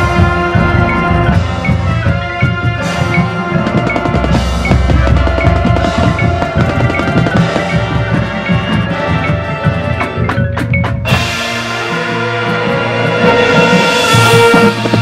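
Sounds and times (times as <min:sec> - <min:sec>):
marching bass drum strikes: 0:00.0 - 0:09.4
brass and wind chords: 0:00.0 - 0:10.4, 0:11.0 - 0:15.0.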